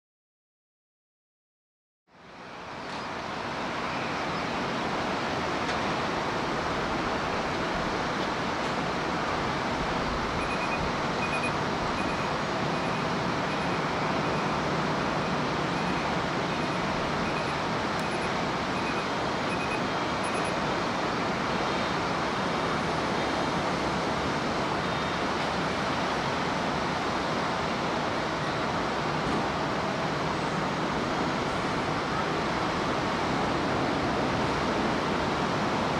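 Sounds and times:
distant jet engine noise: 0:02.2 - 0:35.9
short high beeps: 0:10.4 - 0:20.6.

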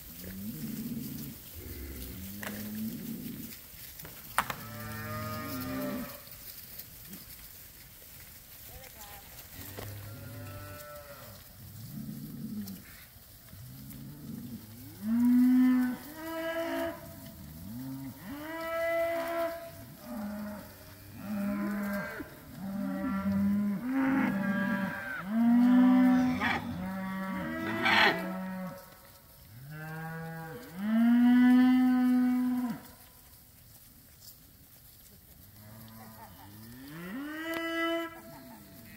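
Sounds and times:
cattle mooing: 0:04.6 - 0:06.2, 0:09.6 - 0:11.4, 0:13.8 - 0:28.8.

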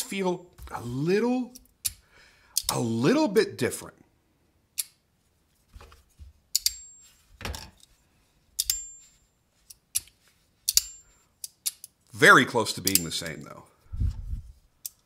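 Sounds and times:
high metallic ring: 0:06.7 - 0:07.2, 0:08.7 - 0:09.2.

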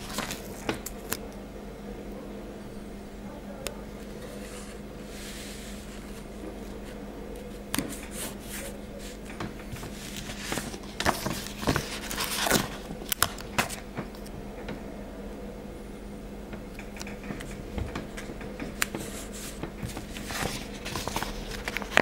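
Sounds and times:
paper stickers crinkling: 0:00.0 - 0:01.2, 0:04.0 - 0:14.3, 0:16.8 - 0:22.0
steady low hum: 0:00.0 - 0:22.0.

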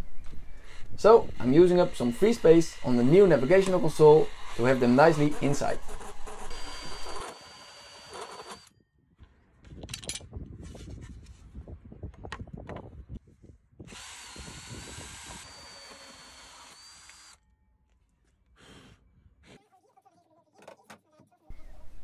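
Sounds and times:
hole saw grinding: 0:01.1 - 0:08.7, 0:13.9 - 0:17.4
drill motor whine: 0:01.3 - 0:04.9, 0:06.0 - 0:08.7, 0:13.9 - 0:17.4.

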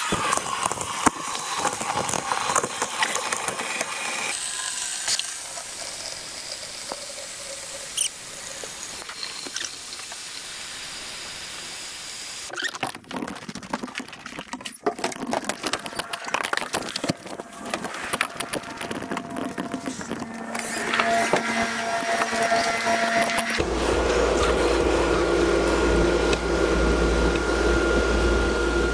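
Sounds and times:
tap water running into bucket: 0:00.0 - 0:11.6, 0:12.4 - 0:26.5
water sloshing in bucket: 0:12.5 - 0:25.0.

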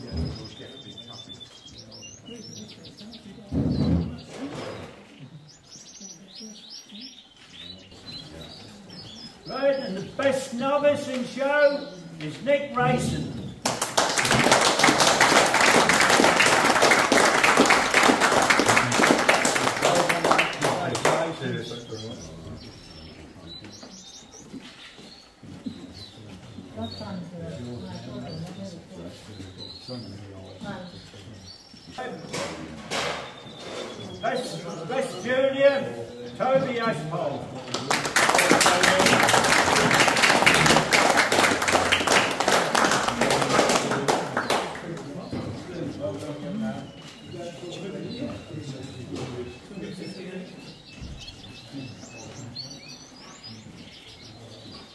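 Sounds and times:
audience applauding: 0:13.6 - 0:21.9, 0:37.7 - 0:45.2.

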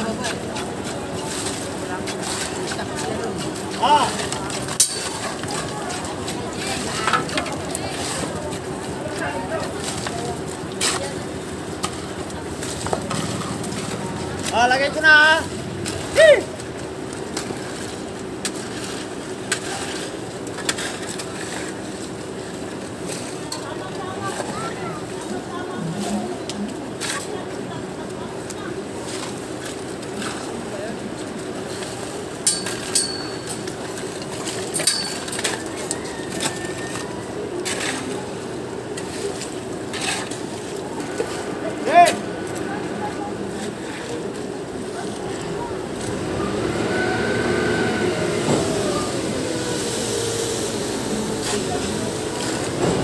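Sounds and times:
shovels scraping wet concrete: 0:00.0 - 0:27.7, 0:28.4 - 0:53.0
pump truck engine humming: 0:35.4 - 0:53.0
diesel engine droning: 0:44.6 - 0:53.0.

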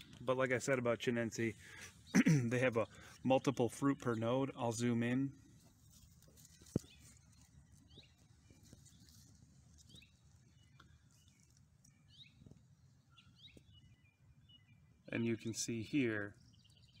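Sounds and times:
faint bird chirps: 0:06.4 - 0:17.0.

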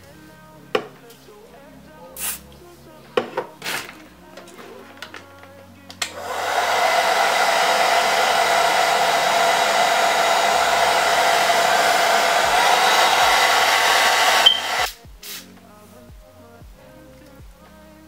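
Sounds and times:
hair dryer blowing: 0:06.1 - 0:14.9.

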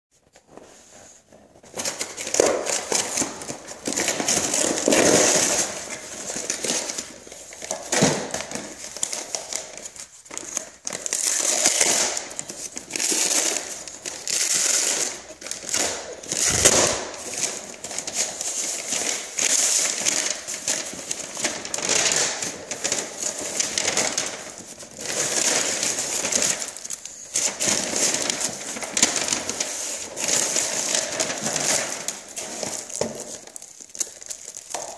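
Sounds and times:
envelope tearing and crinkling: 0:10.3 - 0:34.9
sharp paper rip: 0:16.4 - 0:17.4.

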